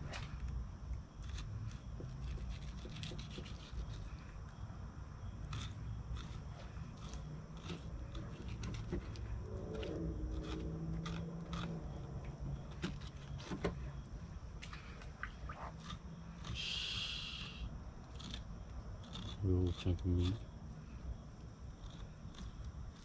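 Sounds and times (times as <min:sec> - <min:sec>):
low steady hum: 0:00.0 - 0:23.0
knife scraping meat from skin: 0:01.2 - 0:04.2, 0:17.4 - 0:20.6
short hiss: 0:16.6 - 0:17.6.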